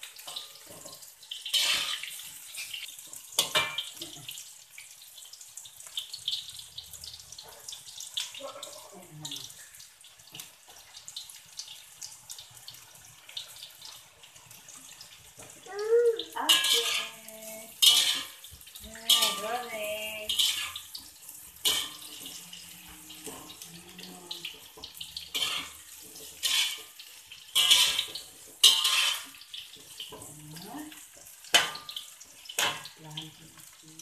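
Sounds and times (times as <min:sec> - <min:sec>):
oil sizzling: 0:00.0 - 0:34.0
metal spatula scraping a wok: 0:00.2 - 0:03.9, 0:16.5 - 0:18.5, 0:19.1 - 0:23.6, 0:24.6 - 0:30.4.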